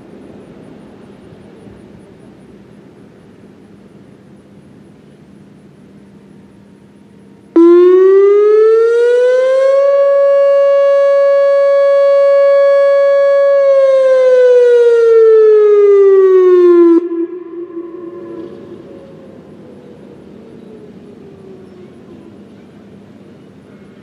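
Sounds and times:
electronic siren tone: 0:07.6 - 0:21.8.

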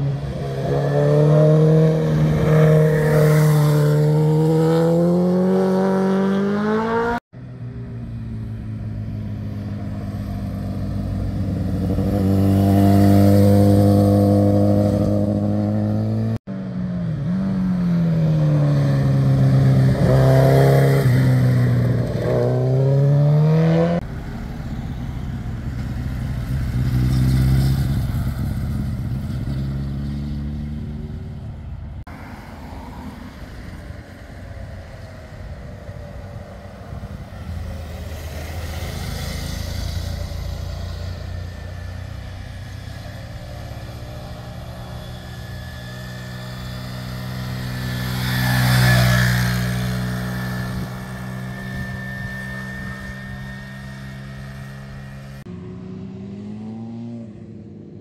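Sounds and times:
motorcycle engines slowing and accelerating: 0:00.0 - 0:58.0.

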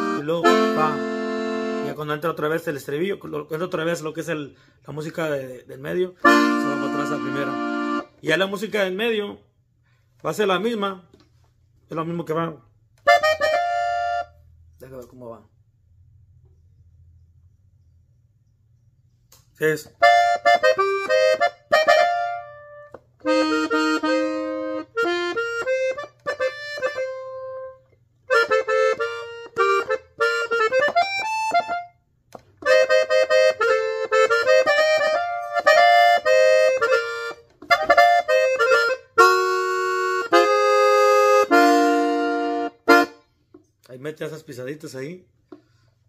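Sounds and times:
button accordion playing: 0:00.0 - 0:02.7, 0:06.1 - 0:08.7, 0:13.0 - 0:14.4, 0:20.0 - 0:43.4.

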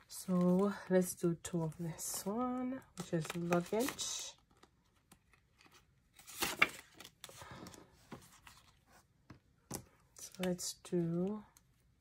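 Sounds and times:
plastic sleeve rustling: 0:03.0 - 0:04.7.

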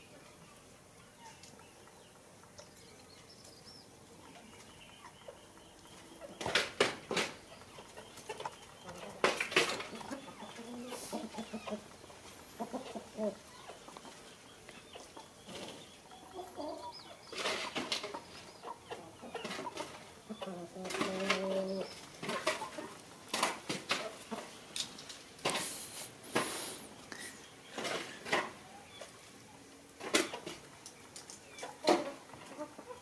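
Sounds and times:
chickens clucking: 0:00.0 - 0:33.0.

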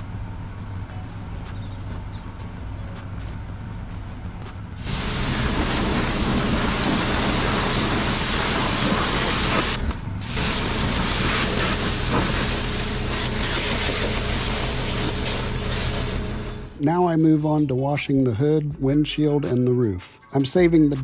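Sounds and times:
steady low hum: 0:00.0 - 0:19.3
pressure washer spray hissing: 0:04.8 - 0:16.7.

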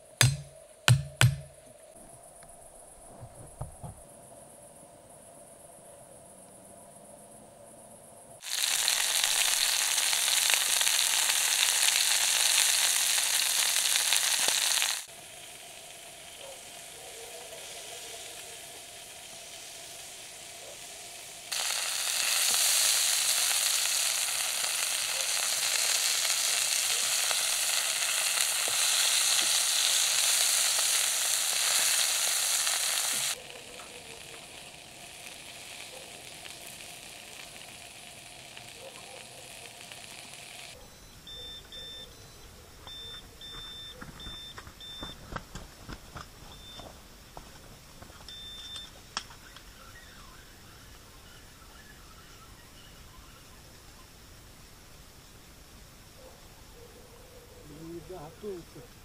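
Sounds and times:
sausages sizzling in a frying pan: 0:08.4 - 0:40.8, 0:48.3 - 0:56.2, 0:57.6 - 0:59.0.

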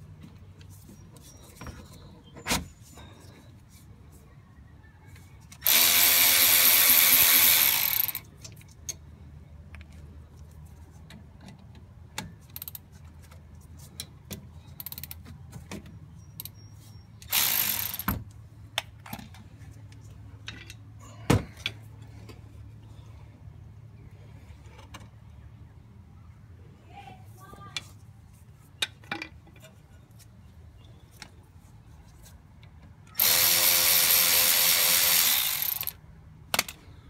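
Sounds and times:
cordless ratchet spinning: 0:05.6 - 0:08.2, 0:17.3 - 0:18.1, 0:33.2 - 0:36.0.

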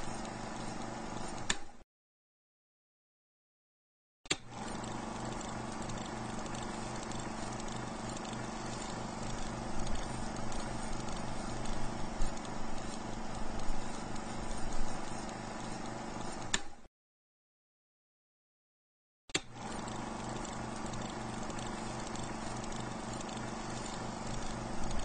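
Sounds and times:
film projector whirring and clattering: 0:00.0 - 0:01.8, 0:04.3 - 0:16.9, 0:19.4 - 0:25.0.

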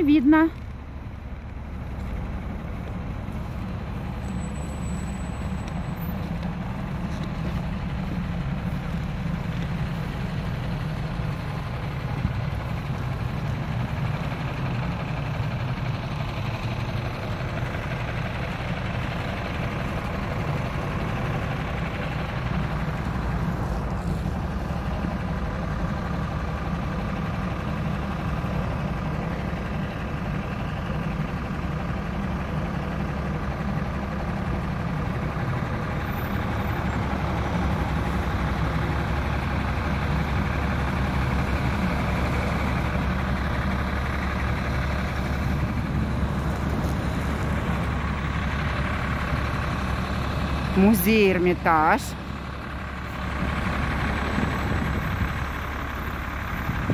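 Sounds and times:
road traffic noise: 0:00.0 - 0:56.9
strong wind rumbling on microphone: 0:56.7 - 0:56.9.

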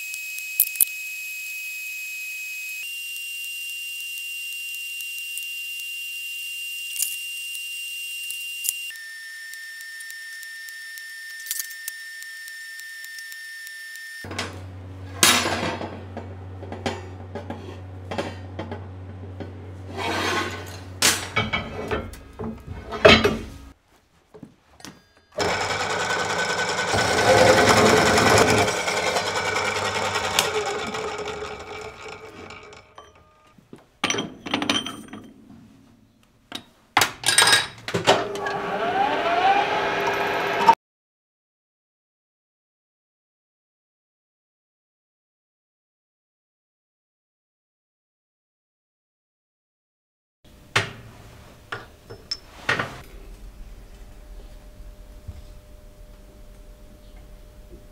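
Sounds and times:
welding arc whine: 0:00.0 - 0:17.3
circular saw cutting steel: 0:00.0 - 0:18.4, 0:19.7 - 0:22.2, 0:25.4 - 0:33.4, 0:38.2 - 0:40.8
low hum: 0:14.3 - 0:23.7, 0:53.0 - 0:57.9
metal clanks and knocks: 0:14.3 - 0:23.7, 0:27.0 - 0:33.4, 0:34.0 - 0:35.6
metal lathe running: 0:25.4 - 0:33.3, 0:38.2 - 0:40.8.

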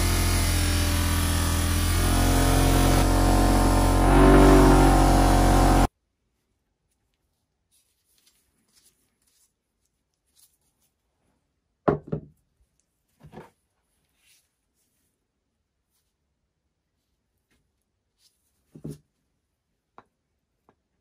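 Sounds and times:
bench grinder motor running: 0:00.0 - 0:05.9.

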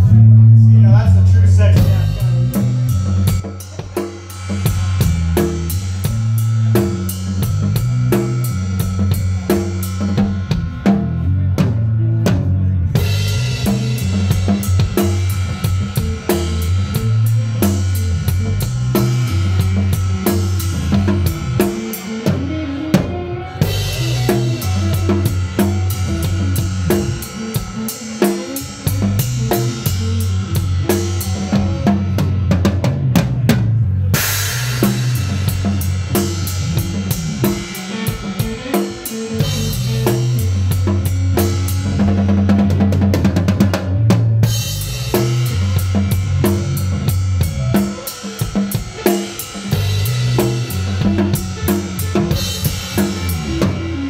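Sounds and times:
drums and cymbals hit hard: 0:00.0 - 0:54.0
live band playing heavy music: 0:00.0 - 0:54.0.

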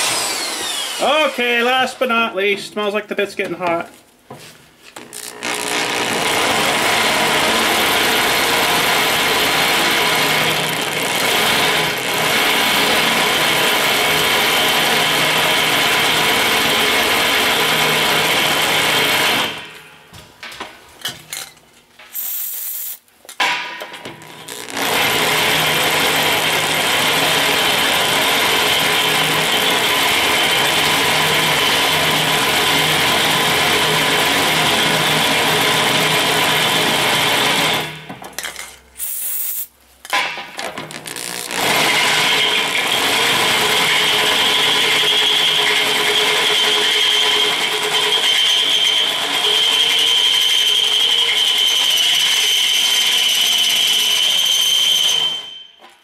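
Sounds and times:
drill bit squealing: 0:00.0 - 0:01.4, 0:41.0 - 0:55.8
drill press boring metal: 0:00.0 - 0:01.6, 0:05.0 - 0:19.7, 0:24.1 - 0:38.0, 0:40.1 - 0:55.6
aerosol spray hiss: 0:22.2 - 0:23.0, 0:39.0 - 0:39.7.

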